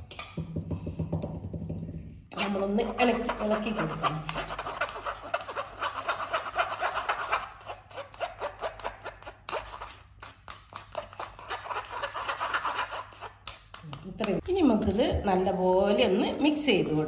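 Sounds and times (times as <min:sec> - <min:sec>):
spatula scraping through mesh sieve: 0:02.4 - 0:10.0.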